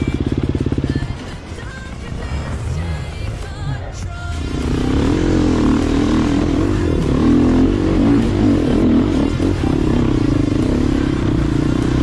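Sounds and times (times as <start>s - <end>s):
motorcycle clattering: 0.0s - 2.1s
motorcycle engine revving: 0.0s - 12.0s.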